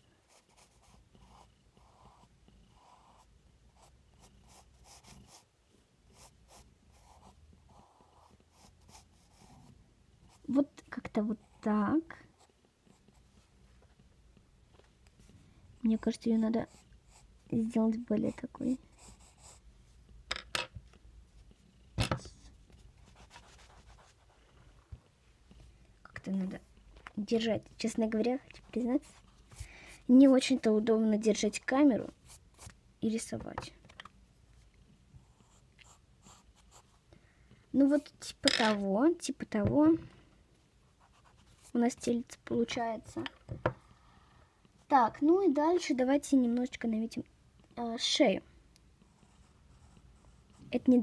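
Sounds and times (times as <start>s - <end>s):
pencil sketching on paper: 0.3s - 5.5s, 6.1s - 9.7s, 16.3s - 19.6s, 22.7s - 24.4s, 35.2s - 37.0s, 41.0s - 42.1s, 49.0s - 51.0s.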